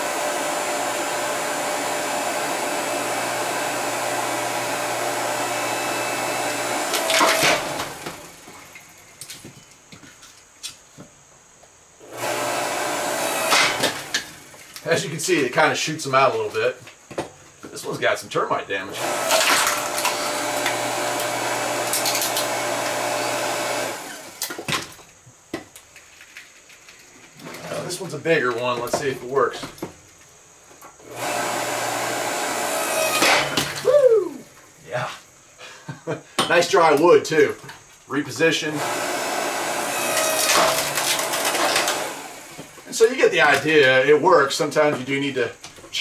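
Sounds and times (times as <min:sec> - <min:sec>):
log splitter motor running: 0:00.0 - 0:08.7, 0:12.0 - 0:14.9, 0:18.9 - 0:24.8, 0:31.0 - 0:34.5, 0:38.7 - 0:44.1
wood cracking and knocking: 0:24.4 - 0:27.8, 0:40.1 - 0:44.0.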